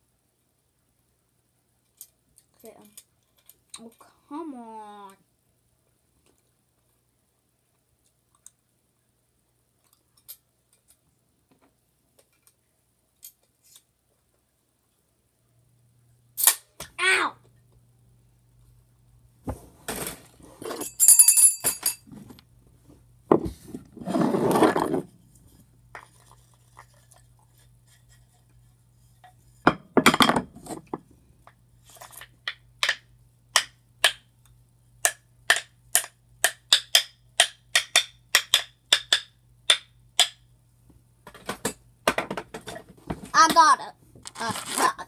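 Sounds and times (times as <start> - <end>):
wooden stick tapping: 33.6 - 34.3, 35.0 - 40.4.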